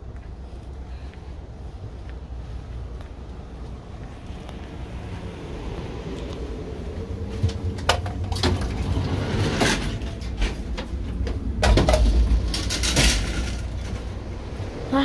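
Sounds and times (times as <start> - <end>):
train low rumble: 0.0 - 15.0
sliding door knocks and clatters: 7.3 - 14.1.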